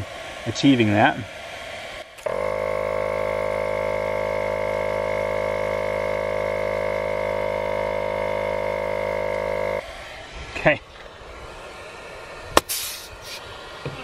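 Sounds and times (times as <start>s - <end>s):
tire inflator motor hum: 2.0s - 10.3s, 12.6s - 13.5s.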